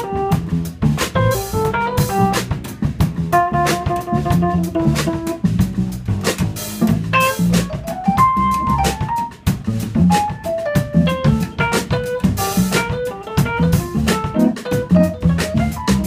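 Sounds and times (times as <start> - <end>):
keyboard playing: 0.0 - 0.5, 1.1 - 16.0
drum kit cymbal and snare: 0.0 - 16.0
upright bass walking: 0.0 - 16.0
electric guitar melody: 3.3 - 5.5.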